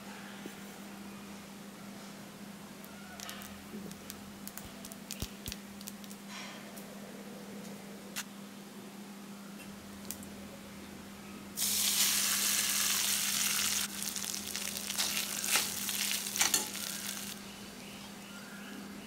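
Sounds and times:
seeds sizzling in hot oil: 0:11.6 - 0:17.4.

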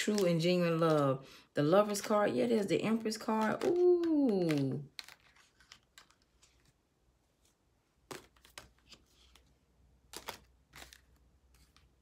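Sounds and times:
cards flicking and sliding: 0:08.0 - 0:12.0.

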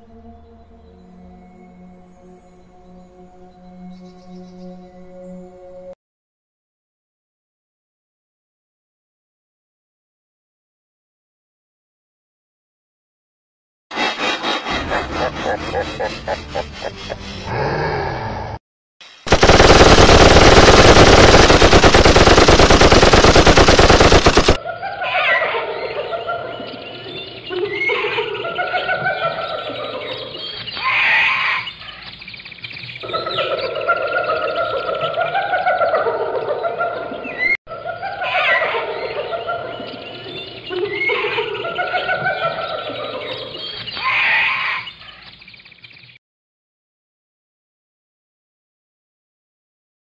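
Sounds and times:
birds chirping in chorus: 0:00.4 - 0:05.5, 0:25.6 - 0:37.6, 0:38.8 - 0:46.2
automatic gunfire burst: 0:19.3 - 0:24.6.

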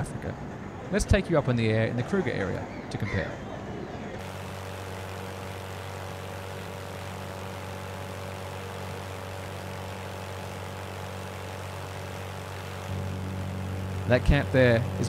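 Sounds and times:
propeller aircraft engine drone: 0:04.2 - 0:15.0.

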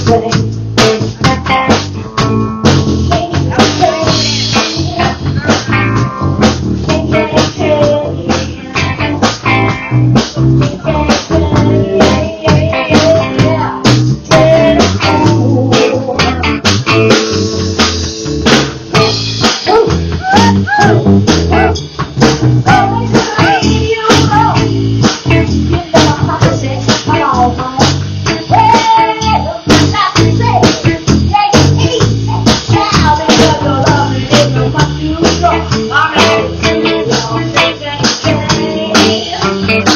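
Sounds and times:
woman singing: 0:00.0 - 0:01.6, 0:03.0 - 0:05.6, 0:06.8 - 0:16.5, 0:19.4 - 0:20.9, 0:22.7 - 0:39.9
drum kit beat: 0:00.0 - 0:39.9
electric bass: 0:00.0 - 0:39.9
electric guitar: 0:00.0 - 0:39.9.

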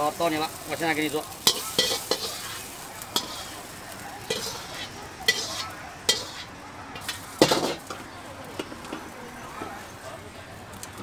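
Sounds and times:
steady sizzle: 0:00.0 - 0:11.0
metal ladle clanking against wok: 0:01.4 - 0:03.6, 0:04.2 - 0:08.0.

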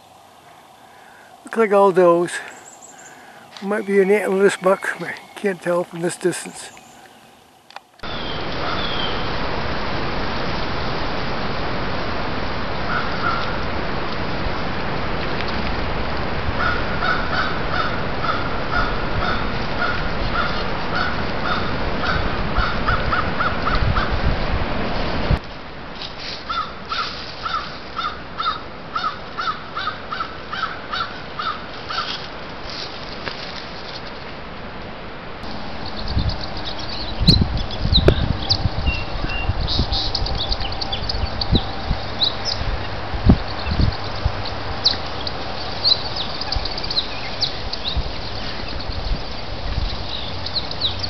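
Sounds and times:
faint bird calls: 0:00.0 - 0:09.2, 0:12.9 - 0:13.6, 0:16.6 - 0:24.2, 0:35.4 - 0:51.0
microphone hiss: 0:00.0 - 0:51.0.

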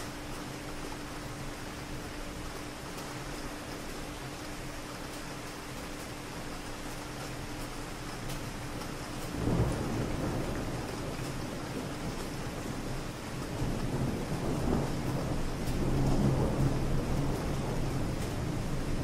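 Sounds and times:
steady rain falling: 0:00.0 - 0:19.0
distant thunder rumbling: 0:09.4 - 0:19.0.

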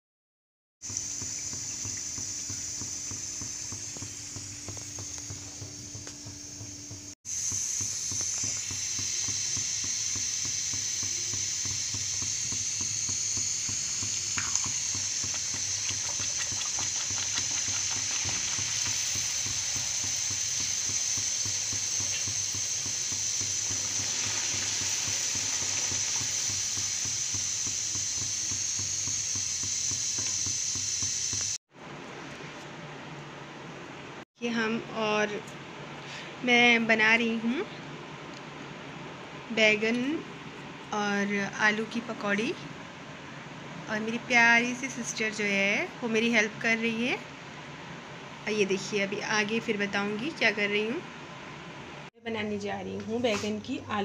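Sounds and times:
deep-frying sizzle: 0:00.8 - 0:31.6.

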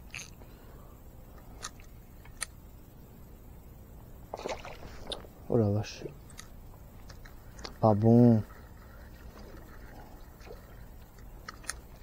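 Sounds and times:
fishing rig splashing into water: 0:04.3 - 0:05.2.

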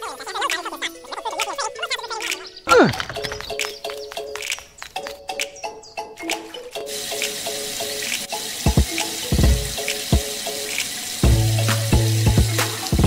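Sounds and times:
light background tune: 0:00.0 - 0:13.0
water spraying from hose: 0:06.8 - 0:13.0.

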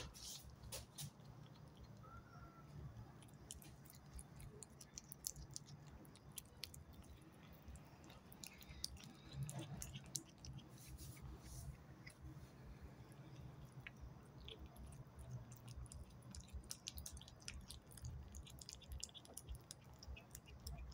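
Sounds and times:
cat chewing meat: 0:00.0 - 0:02.2, 0:02.9 - 0:20.9.

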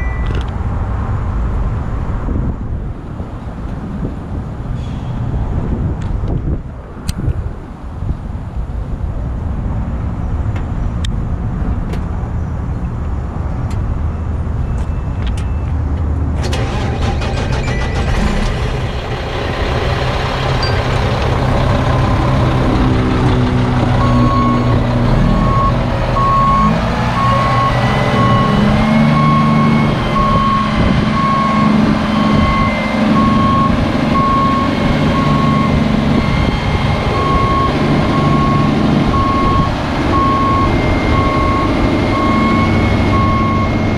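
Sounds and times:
diesel truck engine running: 0:16.1 - 0:43.9
beeping alarm: 0:24.0 - 0:43.9.

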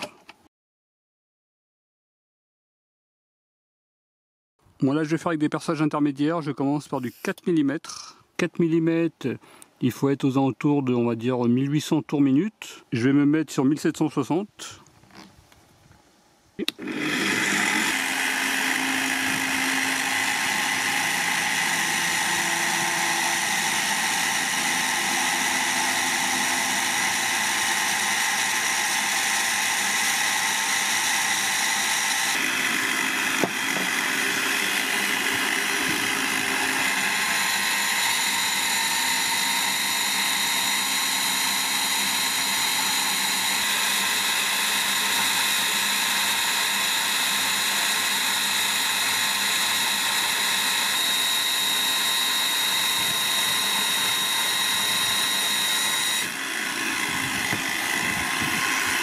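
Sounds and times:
pillar drill drilling steel: 0:16.6 - 0:59.0.

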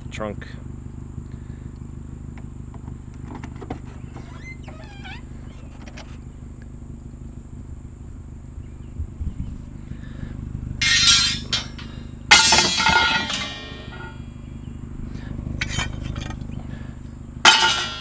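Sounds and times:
car engine idling: 0:00.0 - 0:18.0
short wavering squeak: 0:03.8 - 0:06.2.

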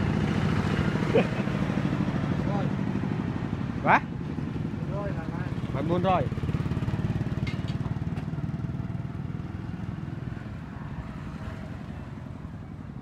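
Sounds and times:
small motorcycle engine running: 0:00.0 - 0:09.4.

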